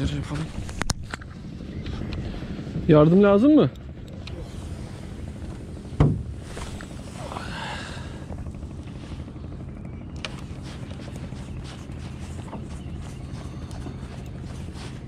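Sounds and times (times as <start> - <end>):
boat engine rumbling: 0.0 - 15.0
sharp knock on boat: 6.0 - 6.4.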